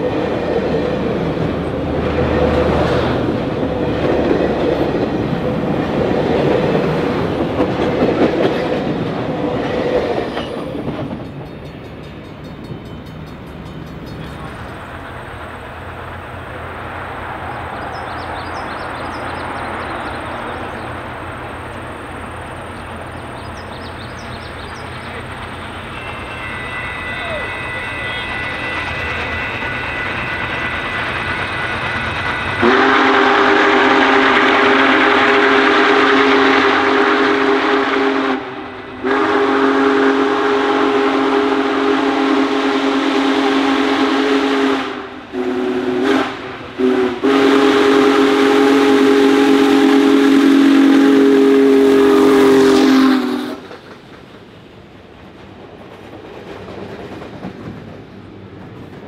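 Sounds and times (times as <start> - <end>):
train rumbling: 0.0 - 59.0
steam whistle blasts: 25.7 - 31.1, 32.5 - 53.6.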